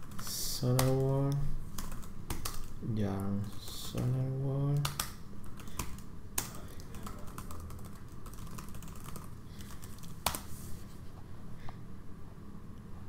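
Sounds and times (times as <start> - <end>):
typing on computer keyboard: 0.0 - 10.4.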